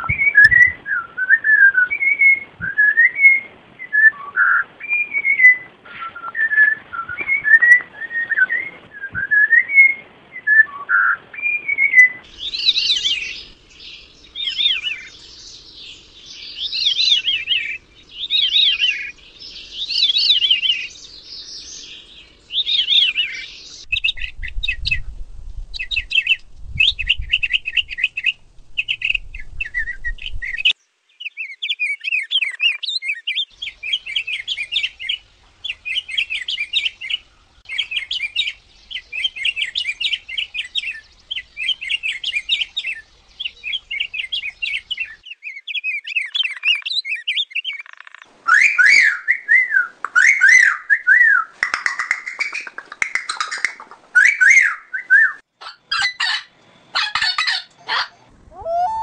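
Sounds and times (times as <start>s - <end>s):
bird singing: 0.0s - 25.1s, 25.8s - 59.0s
bird singing spiralling phrases: 0.0s - 59.0s
bird warbling short phrases: 57.0s - 59.0s.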